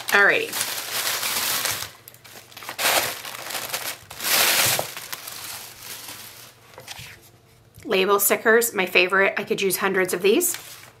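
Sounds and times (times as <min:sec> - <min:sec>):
paper and packaging crinkling: 0:00.0 - 0:07.2, 0:10.3 - 0:11.0.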